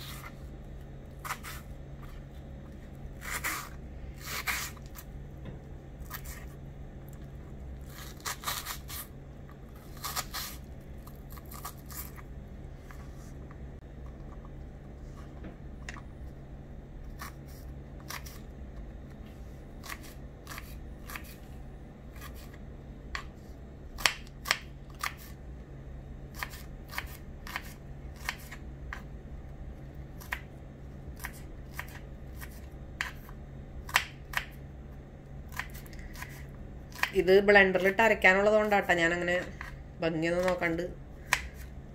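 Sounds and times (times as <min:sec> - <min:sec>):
steady low hum: 0:00.0 - 0:41.9
knife chopping on cutting board: 0:31.2 - 0:33.3.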